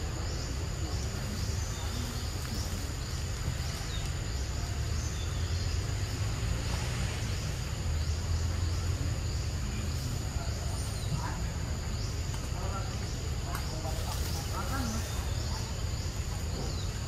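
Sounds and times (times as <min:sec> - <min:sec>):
insect drone: 0:00.0 - 0:17.0.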